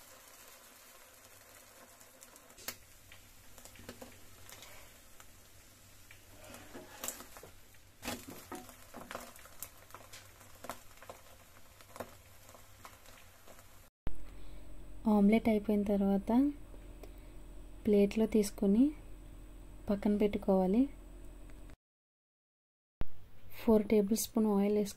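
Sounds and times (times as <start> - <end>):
omelette sizzling in oil: 0.0 - 13.9
plastic spatula scraping pan: 6.3 - 9.1.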